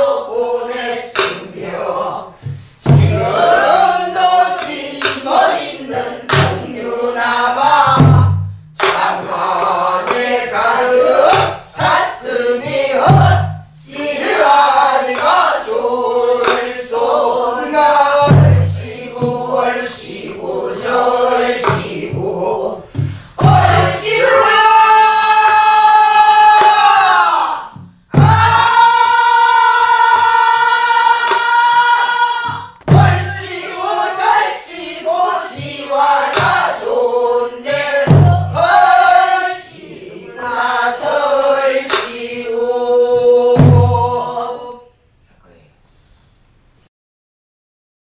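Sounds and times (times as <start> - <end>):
other voices singing: 0.0 - 45.0
folk song sung with heavy vibrato: 0.0 - 45.1
barrel drum strokes: 2.3 - 15.6, 17.7 - 24.4, 27.7 - 31.8, 32.4 - 37.0.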